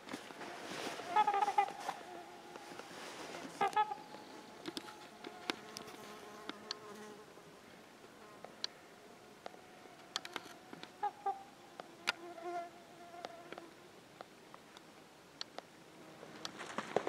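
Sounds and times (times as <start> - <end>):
swans honking: 0.4 - 5.6.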